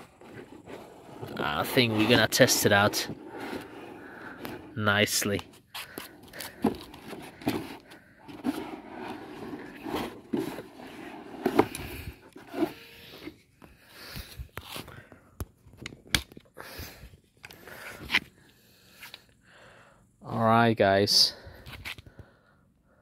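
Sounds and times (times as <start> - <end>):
cardboard scraping and crunching: 0.0 - 5.4, 6.3 - 13.3.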